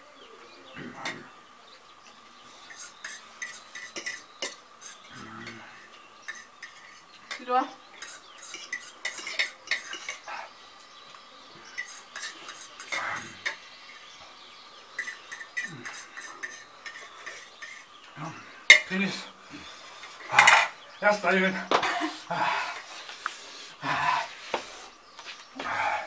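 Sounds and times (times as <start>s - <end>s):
forks scraping on plates: 2.6s - 10.5s, 11.7s - 14.0s, 15.0s - 18.0s
cutlery clatter: 2.7s - 5.6s, 8.0s - 10.3s, 11.8s - 13.6s, 15.0s - 17.9s, 18.7s - 18.9s.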